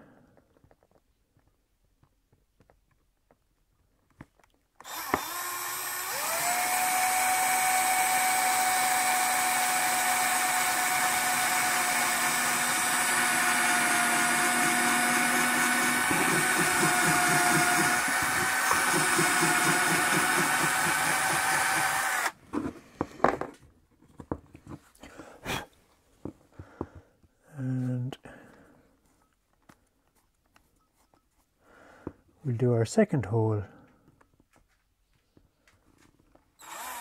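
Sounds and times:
cordless drill whining: 0:04.8 - 0:22.4, 0:36.6 - 0:37.0.

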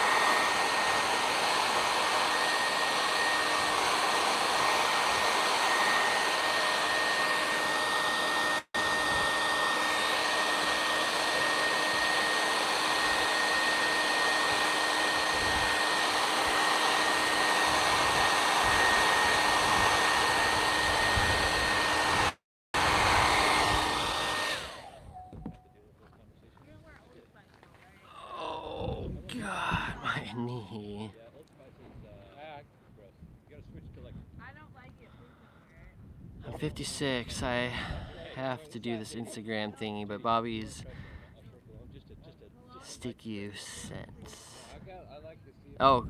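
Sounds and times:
hair dryer running: 0:00.0 - 0:25.6, 0:29.2 - 0:31.1, 0:36.6 - 0:40.9, 0:42.8 - 0:44.8.

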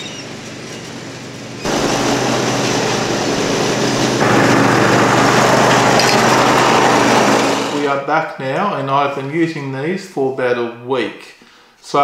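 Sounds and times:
ride-on lawn mower engine: 0:00.0 - 0:07.9.

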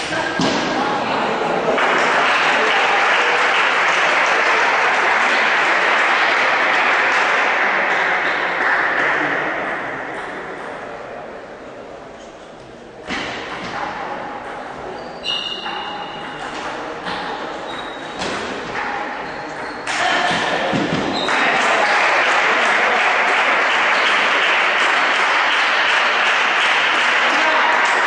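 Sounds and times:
loud applause: 0:00.0 - 0:10.1, 0:19.9 - 0:28.0
voices in a hall: 0:00.0 - 0:28.0.

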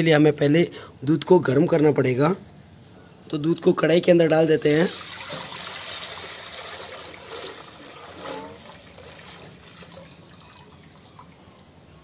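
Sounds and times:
milk pouring into metal pot: 0:04.6 - 0:11.8.

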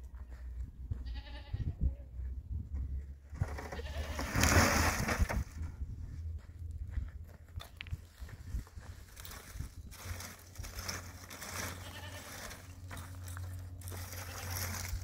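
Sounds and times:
steady low rumble: 0:00.0 - 0:15.0
livestock bleat: 0:01.0 - 0:01.8, 0:03.6 - 0:04.4, 0:11.6 - 0:12.7, 0:13.9 - 0:14.9.

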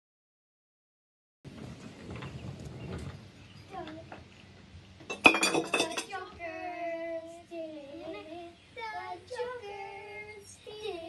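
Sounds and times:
child singing: 0:05.8 - 0:11.0.

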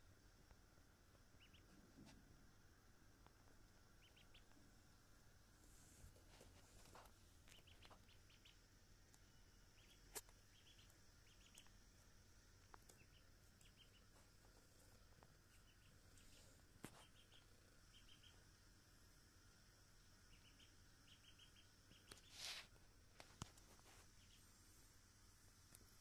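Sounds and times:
duckling peeping: 0:01.3 - 0:01.8, 0:03.9 - 0:04.6, 0:07.4 - 0:12.0, 0:12.6 - 0:14.5, 0:15.3 - 0:18.5, 0:20.0 - 0:22.6, 0:24.0 - 0:24.5.

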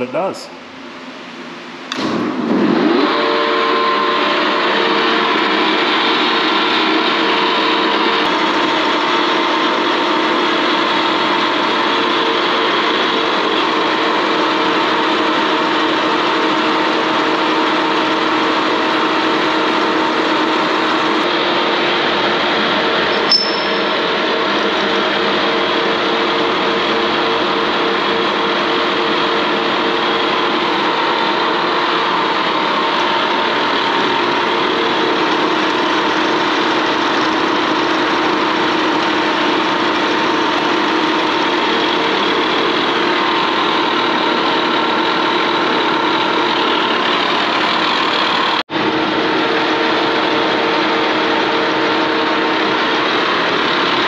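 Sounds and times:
milling machine drone: 0:03.1 - 0:54.0
sharp click: 0:23.1 - 0:23.9.

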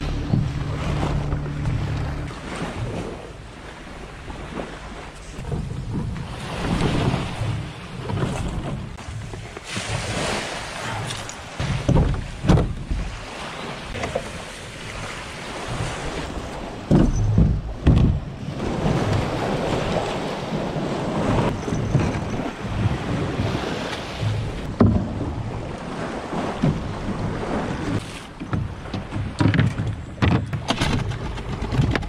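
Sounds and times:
dull low thumps of plastic boat: 0:00.0 - 0:10.1, 0:11.6 - 0:13.3, 0:13.9 - 0:32.0
small waves washing onto shingle: 0:00.0 - 0:30.1
wind buffeting microphone: 0:14.8 - 0:32.0.

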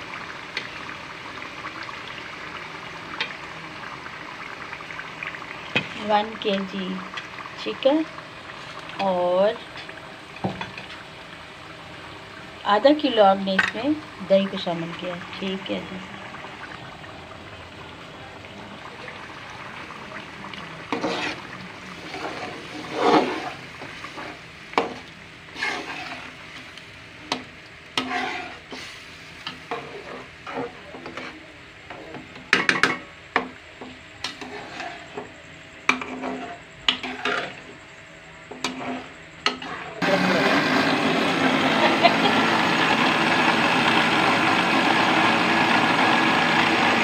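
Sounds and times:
curry sizzling in pot: 0:00.0 - 0:47.0
metal spoon scraping pot: 0:20.9 - 0:23.6, 0:25.5 - 0:26.3, 0:28.0 - 0:28.6, 0:34.2 - 0:35.2, 0:35.9 - 0:37.6, 0:38.6 - 0:39.9.

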